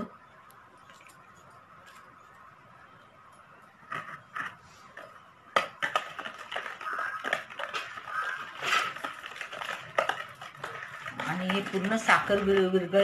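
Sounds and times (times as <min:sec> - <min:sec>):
whisk scraping plastic bowl: 0:05.8 - 0:13.0.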